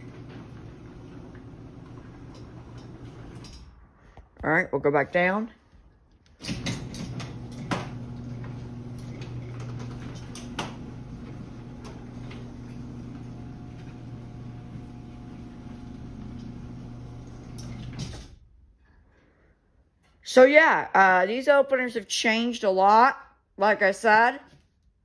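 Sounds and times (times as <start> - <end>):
garage door opener motor humming: 0.0 - 3.6, 6.4 - 18.4
garage door clicks and knocks: 6.4 - 8.5.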